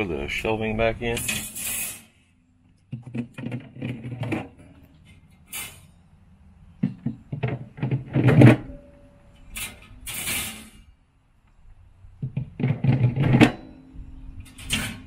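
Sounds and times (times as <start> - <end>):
wire shelf racks clinking: 1.1 - 2.2, 3.1 - 6.0, 7.4 - 10.9, 12.6 - 15.0
metal clatter: 1.1 - 6.0, 6.8 - 10.9, 12.2 - 15.0.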